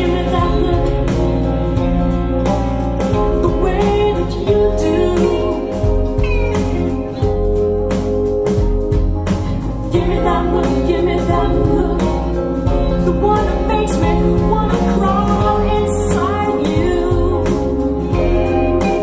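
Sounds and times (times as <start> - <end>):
woman singing: 0.0 - 2.0, 3.1 - 7.2, 9.9 - 19.0
bass guitar and drums: 0.0 - 19.0
pop song over speakers: 0.0 - 19.0.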